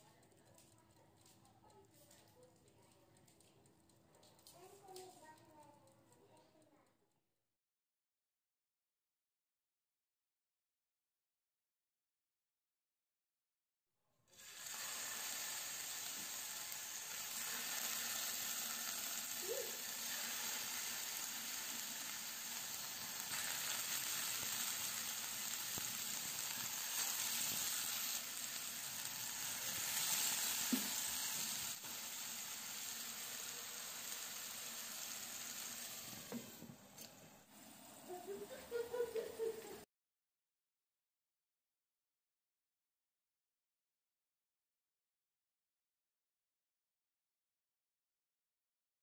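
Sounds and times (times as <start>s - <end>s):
patties sizzling in frying pan: 14.4s - 36.7s
faint knocks in pan: 30.7s - 31.0s.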